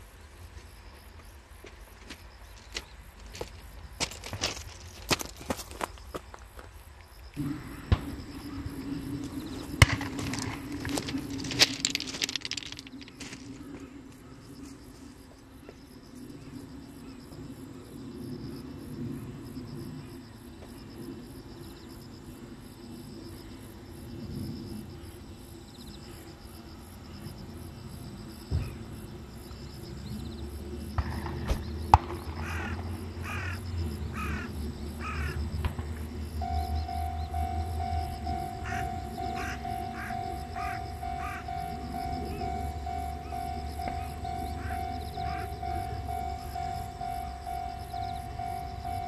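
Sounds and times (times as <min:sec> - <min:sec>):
insects chirping: 0:00.0 - 0:49.0
low rumble: 0:07.3 - 0:15.4, 0:27.1 - 0:49.0.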